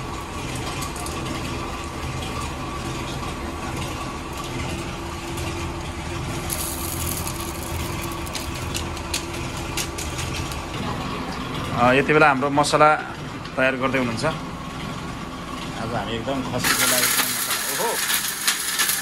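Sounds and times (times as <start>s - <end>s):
motor humming: 0.0s - 11.9s
plastic packet crinkling: 6.5s - 8.7s.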